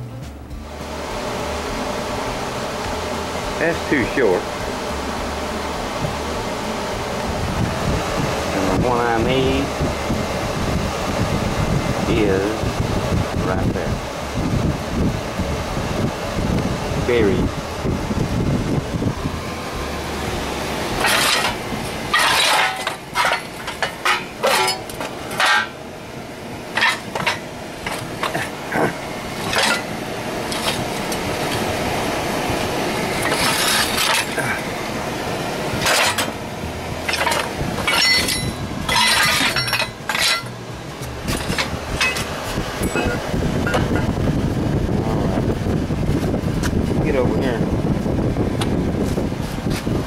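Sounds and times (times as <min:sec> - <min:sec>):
scrap steel pieces clanking: 0:21.0 - 0:25.8, 0:26.7 - 0:31.6, 0:33.2 - 0:34.6, 0:35.8 - 0:36.4, 0:37.0 - 0:40.6, 0:41.3 - 0:43.9.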